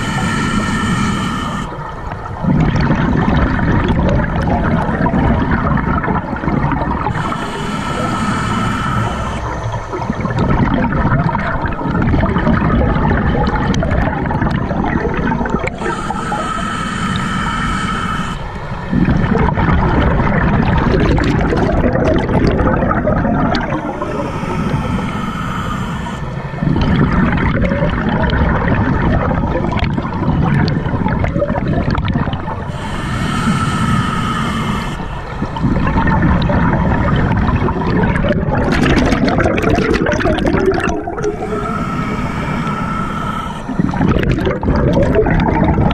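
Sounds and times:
scuba regulator hissing inhale: 0.0 - 1.9, 7.0 - 10.4, 15.6 - 18.9, 23.5 - 27.2, 32.5 - 36.1, 40.0 - 44.6
exhaled air bubbling: 0.0 - 45.9.

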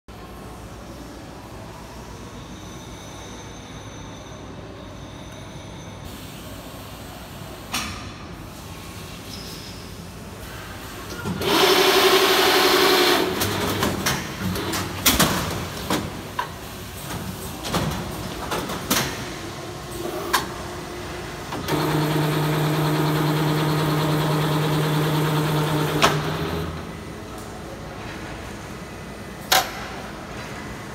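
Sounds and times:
steady motor hum: 21.6 - 27.3.

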